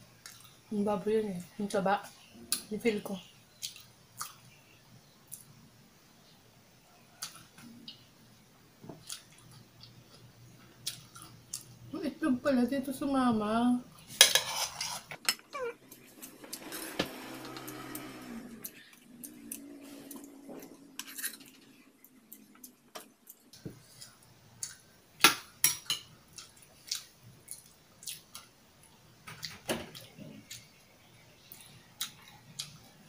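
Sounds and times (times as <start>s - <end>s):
spoon clinking and scraping pan: 14.1s - 15.5s.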